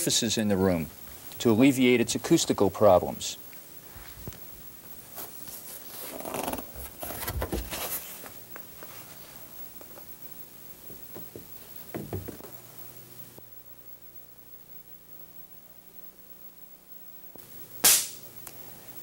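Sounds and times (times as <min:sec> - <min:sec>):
cloth and board rustling: 0:05.1 - 0:09.4
light knocks on wood: 0:10.9 - 0:12.4.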